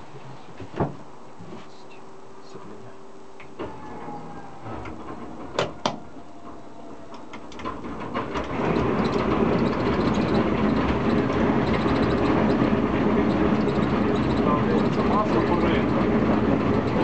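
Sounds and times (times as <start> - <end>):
radial aircraft engine starting: 3.4 - 17.0.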